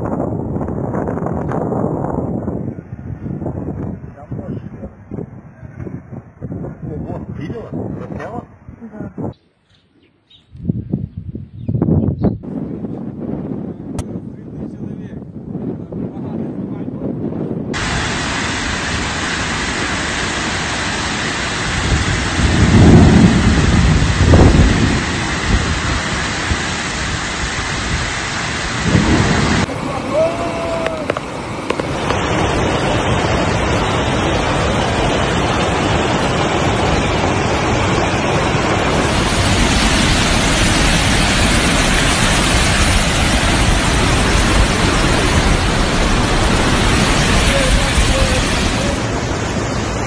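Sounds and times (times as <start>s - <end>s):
wind on microphone: 0.0s - 50.0s
flash flood torrent roaring: 17.7s - 50.0s
steady rain: 17.8s - 50.0s
thunder rumbles: 21.4s - 50.0s.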